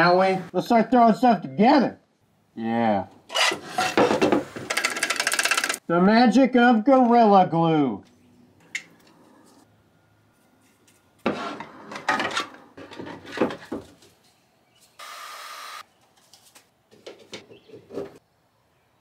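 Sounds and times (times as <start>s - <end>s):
plastic parts knocking and scraping: 3.3s - 5.8s, 11.3s - 14.2s.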